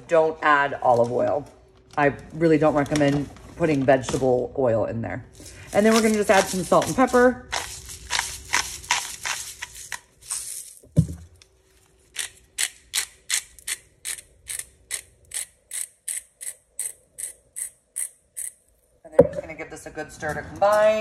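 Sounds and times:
grinder ratchet clicks: 12.2s - 18.6s.

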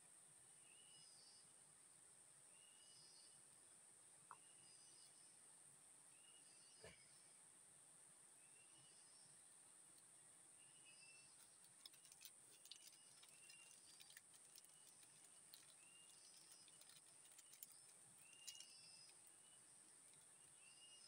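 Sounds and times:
faint clicks: 11.3s - 20.5s.

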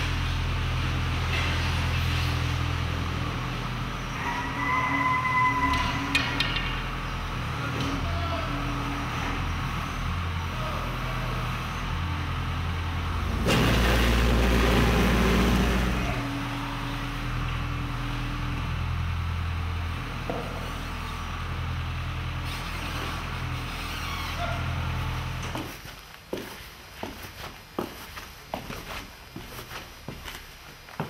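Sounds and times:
diesel engines of machinery: 0.0s - 25.9s
rubble dumped into truck: 13.4s - 15.6s.

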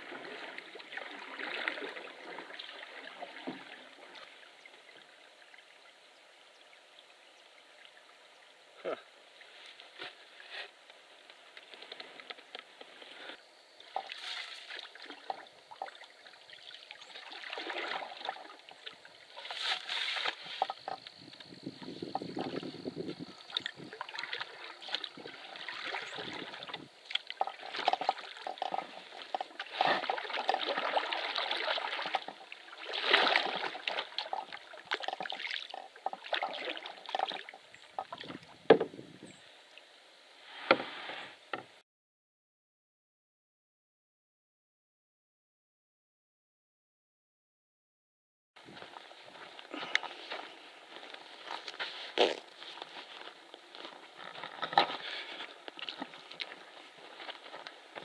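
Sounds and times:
water sloshing from paddle strokes: 0.0s - 5.6s, 9.4s - 39.0s, 49.8s - 58.0s
knocks against canoe hull: 38.7s - 39.0s.

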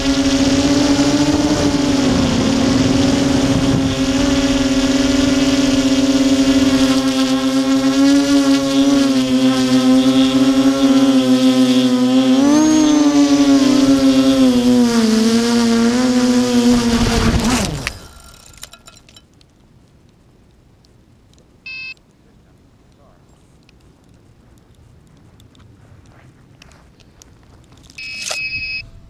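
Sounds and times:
quadcopter motors whining: 0.0s - 19.2s, 27.8s - 29.0s.

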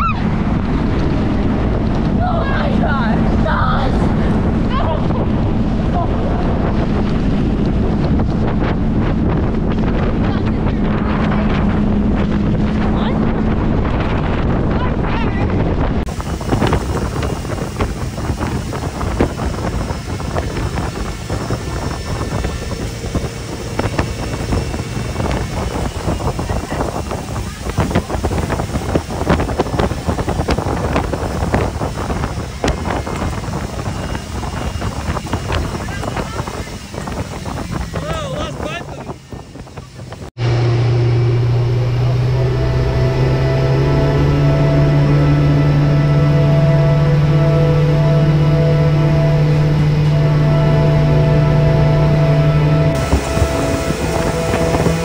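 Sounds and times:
boat engine rushing: 0.0s - 55.0s
churning wake: 0.0s - 55.0s
wind buffeting microphone: 0.0s - 55.0s
steady low hum: 15.7s - 55.0s.

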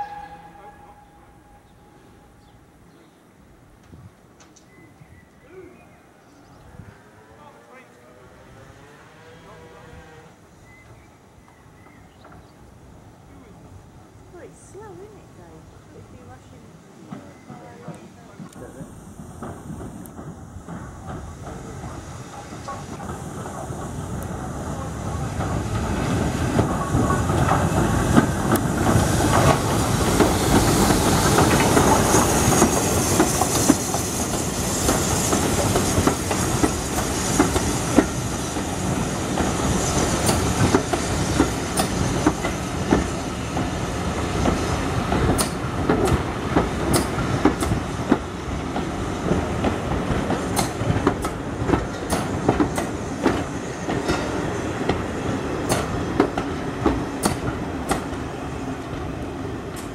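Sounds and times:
train wheels rumbling: 0.0s - 4.7s, 6.4s - 59.9s
steam hissing: 16.0s - 59.9s
wheels clicking over rail joints: 44.4s - 59.9s.

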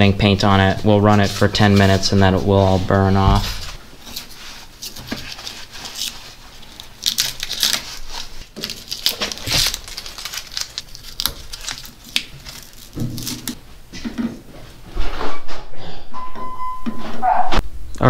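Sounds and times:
tape being peeled off: 3.5s - 13.6s
tape crumpled in hand: 4.1s - 13.6s.

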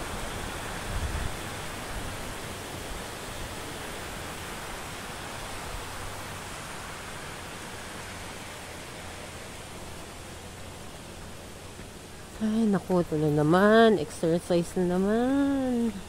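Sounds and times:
waterfall rushing: 0.0s - 12.4s.

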